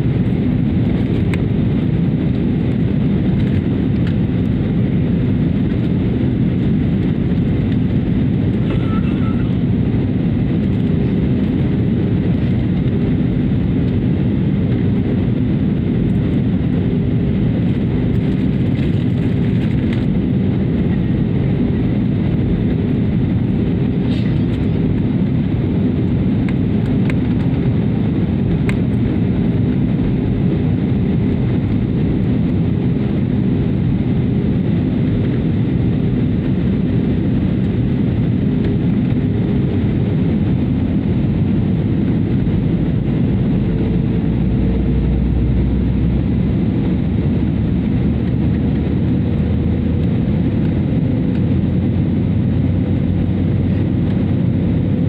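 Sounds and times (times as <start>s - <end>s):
airliner cabin jet engine noise: 0.0s - 55.0s
faint hum: 8.2s - 11.6s.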